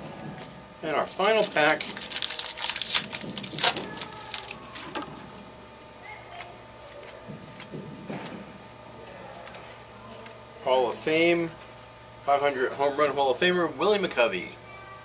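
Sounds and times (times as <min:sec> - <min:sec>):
wrapper crinkling and tearing: 0:01.2 - 0:05.0.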